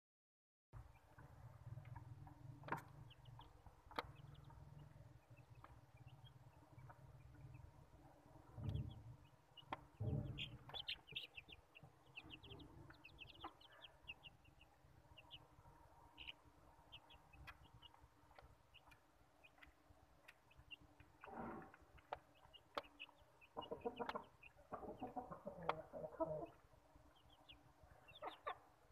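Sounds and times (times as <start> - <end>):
chicks peeping: 0.8 - 28.9
low thumps: 8.4 - 12.1.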